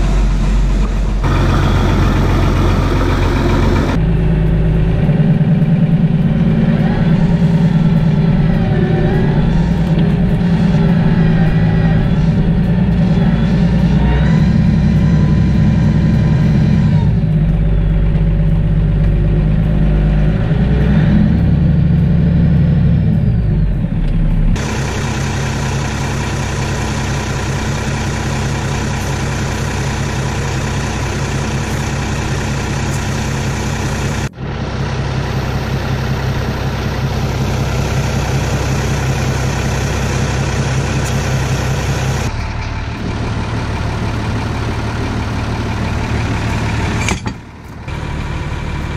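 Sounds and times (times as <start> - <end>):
tractor diesel engine idling: 0.0 - 48.9.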